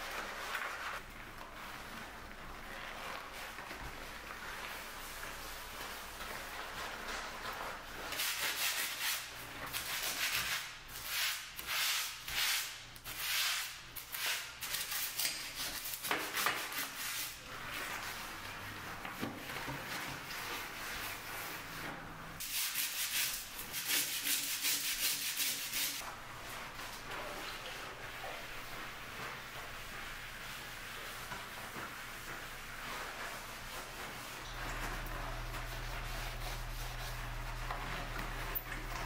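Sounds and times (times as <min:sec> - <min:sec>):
toothbrush scrubbing sink: 0:00.0 - 0:39.0.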